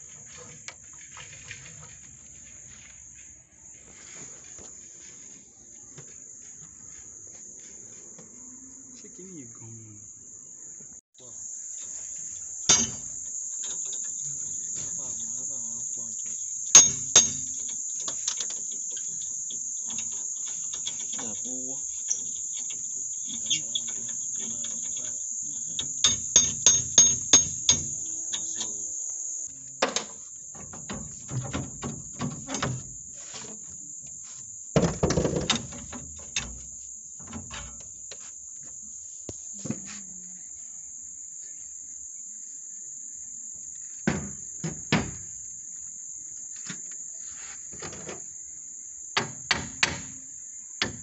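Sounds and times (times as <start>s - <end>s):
crickets chirring: 0.0s - 51.0s.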